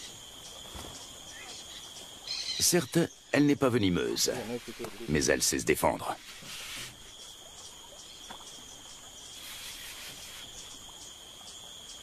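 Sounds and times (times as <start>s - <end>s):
insects chirring: 0.0s - 12.0s
short hiss of noise: 6.2s - 7.0s.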